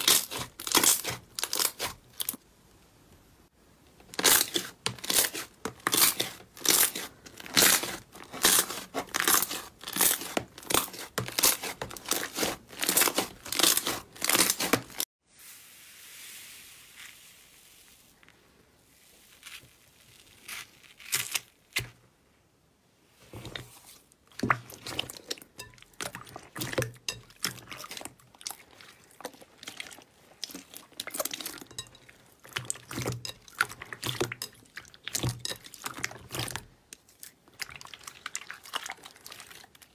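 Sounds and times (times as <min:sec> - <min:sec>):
soft slime squish: 0:00.0 - 0:02.6, 0:03.2 - 0:15.0, 0:15.6 - 0:22.0, 0:23.0 - 0:39.9.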